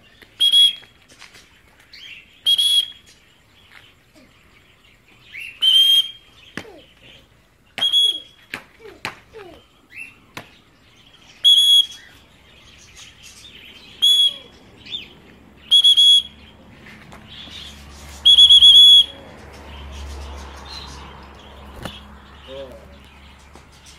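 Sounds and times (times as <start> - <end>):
faint bird chirping: 0.0 - 23.9
high-pitched whistle blasts: 7.8 - 8.3, 11.4 - 12.0, 14.0 - 14.5, 15.7 - 16.3, 18.3 - 19.1.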